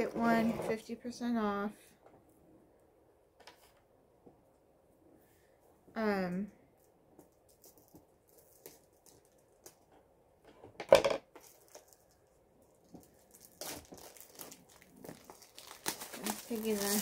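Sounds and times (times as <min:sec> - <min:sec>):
packaging handling clicks and rustles: 0:11.4 - 0:17.0
plastic wrap crinkling: 0:11.4 - 0:17.0.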